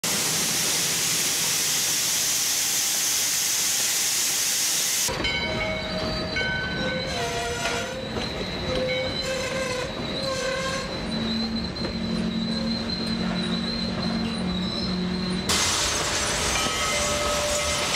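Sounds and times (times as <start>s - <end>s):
steam locomotive hissing: 0.0s - 5.2s, 15.0s - 17.9s
wheel flanges squealing on rail: 1.0s - 17.9s.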